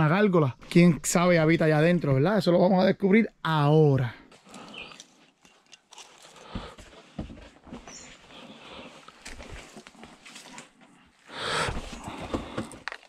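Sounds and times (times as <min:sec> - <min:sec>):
footsteps on rocky ground: 0:04.3 - 0:13.0.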